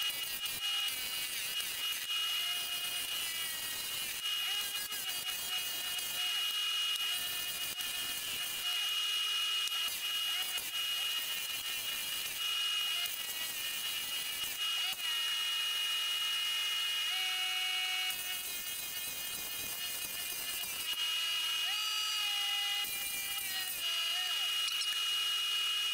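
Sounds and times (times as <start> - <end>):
chisel cutting wood hiss: 0.0 - 15.4
wood lathe whine: 0.0 - 25.9.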